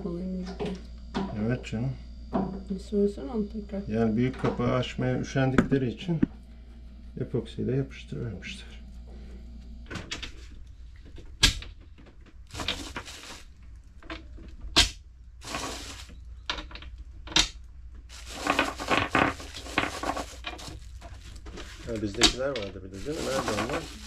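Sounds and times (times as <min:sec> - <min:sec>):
rustling and scraping: 0:10.1 - 0:14.8, 0:15.4 - 0:24.0.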